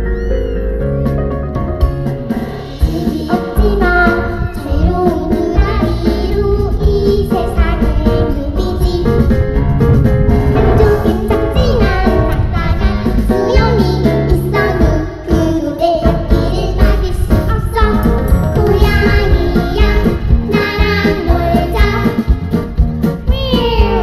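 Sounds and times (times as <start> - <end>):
backing track with beat and bass: 0.0 - 24.0
girls singing pop song: 2.4 - 9.0, 10.7 - 22.4, 23.3 - 24.0.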